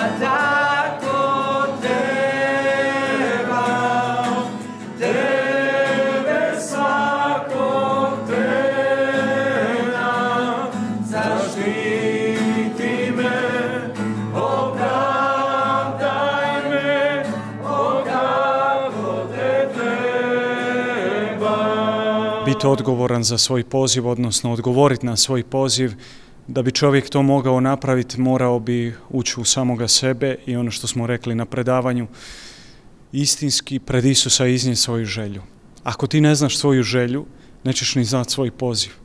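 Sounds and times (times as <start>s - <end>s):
men singing worship song: 0.0s - 23.1s
acoustic guitar: 0.0s - 26.6s.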